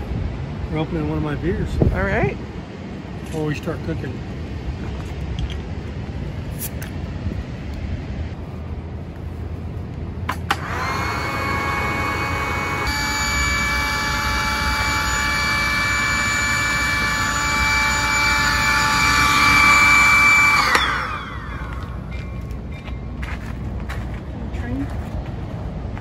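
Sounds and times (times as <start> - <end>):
small electric motor whining: 10.5 - 22.6.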